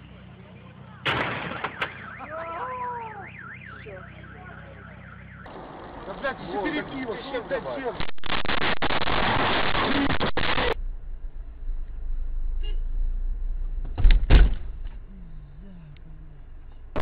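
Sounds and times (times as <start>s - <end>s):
car engine rumble from inside: 10.7s - 17.0s
car collision thumps: 13.8s - 15.0s.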